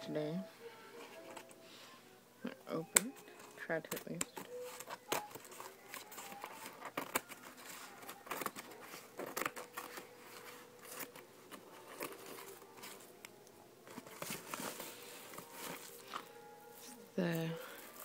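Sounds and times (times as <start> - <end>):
padded envelope crinkling: 3.2 - 13.2, 13.9 - 18.0.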